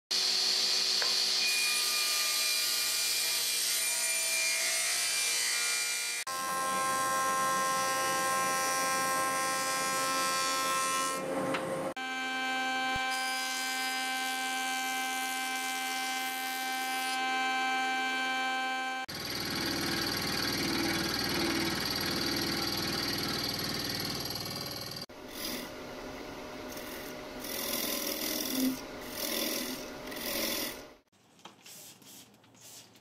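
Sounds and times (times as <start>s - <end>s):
table saw whining: 0.1s - 31.0s
thickness planer whining: 0.1s - 31.0s
jointer whining: 18.8s - 31.0s.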